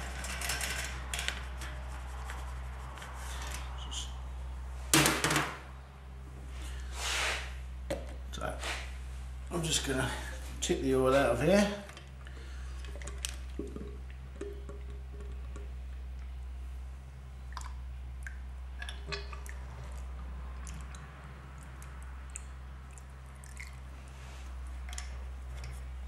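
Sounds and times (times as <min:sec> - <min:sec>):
low electrical hum: 0:00.0 - 0:26.0
oil trickling into plastic jug: 0:12.0 - 0:16.3, 0:17.5 - 0:26.0.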